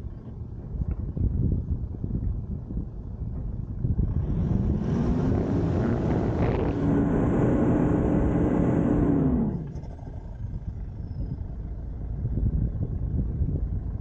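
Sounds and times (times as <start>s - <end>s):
suv engine revving: 4.0s - 10.2s.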